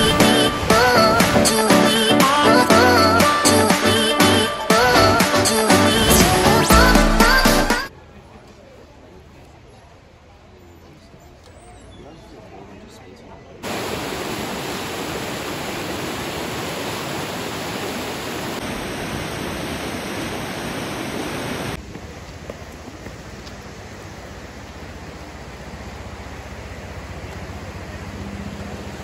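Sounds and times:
whitewater rushing: 0.0s - 7.9s, 13.6s - 21.8s.

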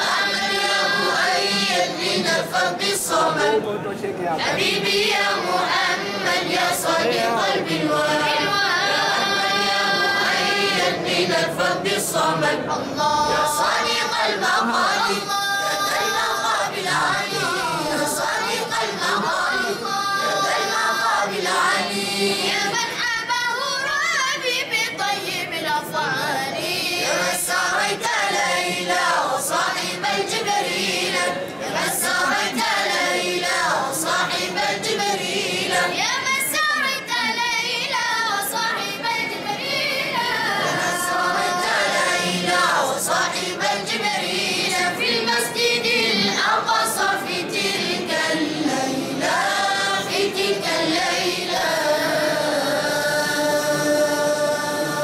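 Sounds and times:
devotional singing voices: 0.0s - 55.0s.

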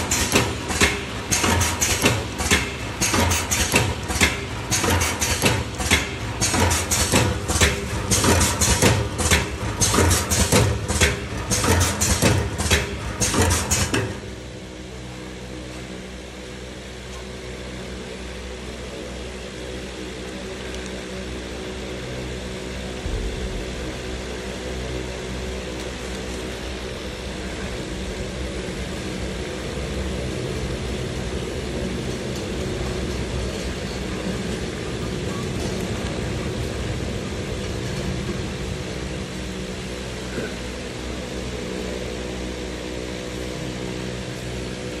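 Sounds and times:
machine clacking: 0.0s - 14.3s
steady machine hum: 0.0s - 45.0s.

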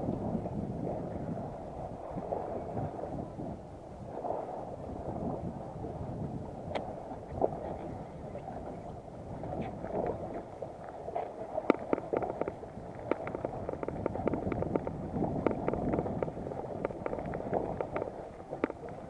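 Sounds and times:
wind on microphone: 0.0s - 19.0s
seawater lapping against boat: 0.1s - 19.0s
small water splashes: 6.7s - 19.0s.

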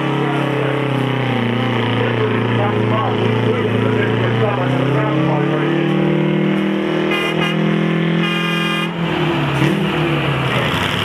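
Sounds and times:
diesel engine running hard: 0.0s - 11.0s
air horn toots: 7.0s - 9.0s.

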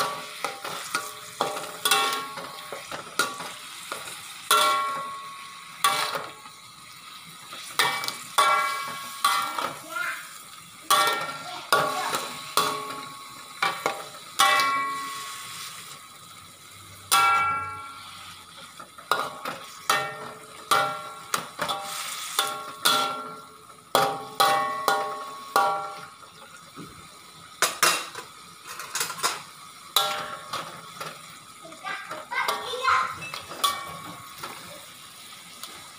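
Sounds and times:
metal spatula scraping wok: 0.0s - 6.4s, 7.6s - 9.9s, 10.8s - 16.0s, 17.0s - 26.1s, 32.4s - 34.7s
metallic clanks: 4.5s - 6.4s.

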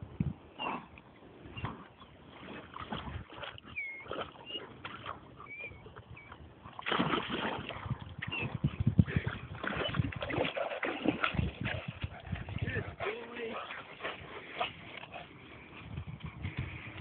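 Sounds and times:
dog splashing in water: 2.3s - 5.5s, 6.7s - 15.1s.

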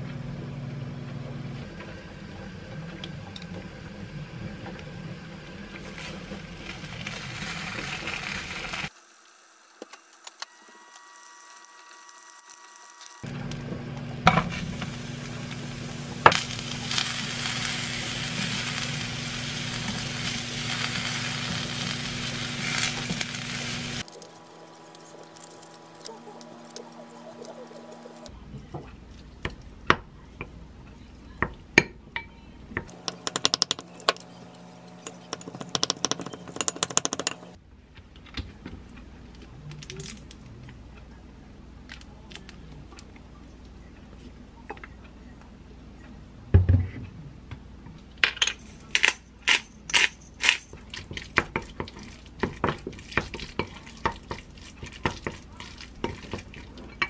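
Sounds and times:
mushrooms sizzling in a pan: 6.0s - 13.3s, 14.4s - 28.3s
eggshell cracking clicks: 32.9s - 37.6s.

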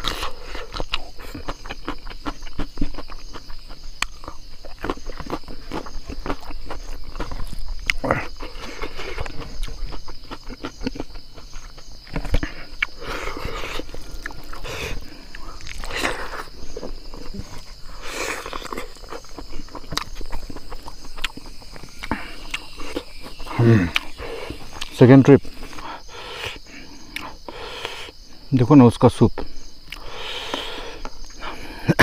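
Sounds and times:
person chewing and smacking: 0.0s - 26.0s, 27.1s - 27.4s, 29.9s - 31.4s
high-pitched insect drone: 0.0s - 32.0s.

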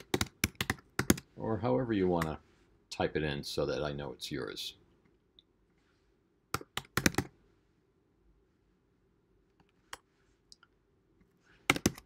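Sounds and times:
computer keyboard typing: 0.0s - 1.3s, 6.5s - 7.3s, 11.7s - 12.0s.

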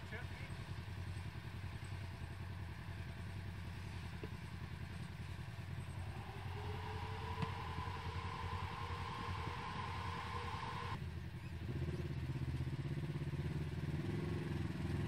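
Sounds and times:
engine running at low revs: 0.6s - 15.0s
rising whine: 5.4s - 11.0s.

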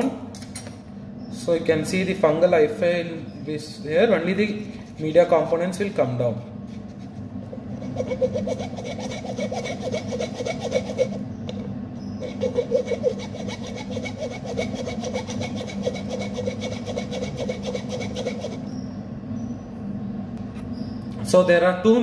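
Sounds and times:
metal spatula rasping on mesh: 6.8s - 11.2s, 12.2s - 18.7s.

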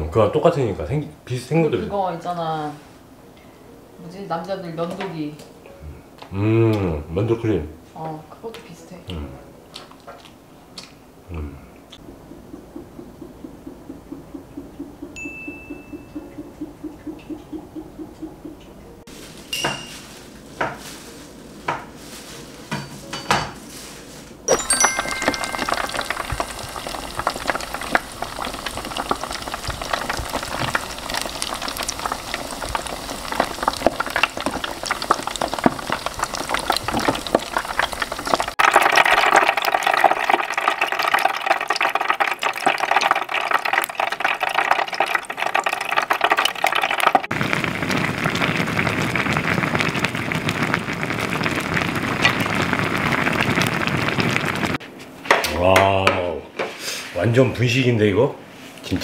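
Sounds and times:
sauce bubbling and sizzling: 24.5s - 54.8s.

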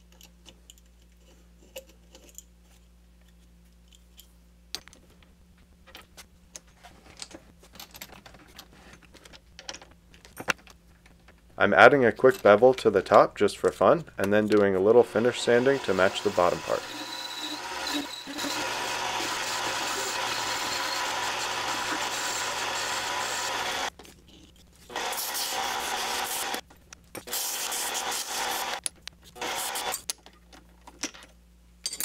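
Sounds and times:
lathe motor hum: 14.9s - 23.9s, 24.9s - 26.6s
lathe tool cutting metal: 14.9s - 23.9s, 24.9s - 26.6s, 27.4s - 28.8s, 29.4s - 30.0s
sandpaper rubbing spinning metal: 15.0s - 23.9s, 24.9s - 26.6s, 27.2s - 28.8s, 29.4s - 30.0s.

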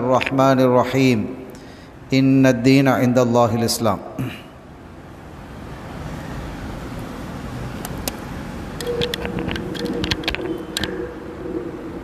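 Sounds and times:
sharp clicks and rattles: 8.8s - 11.0s.

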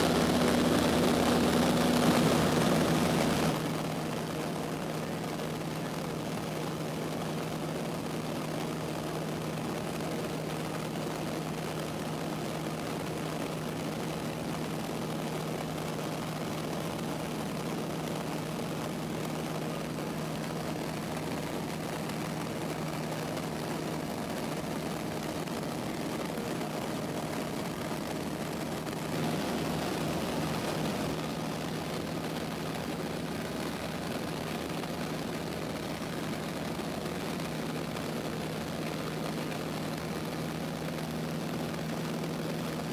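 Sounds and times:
airplane engine droning in cabin: 0.0s - 42.9s.

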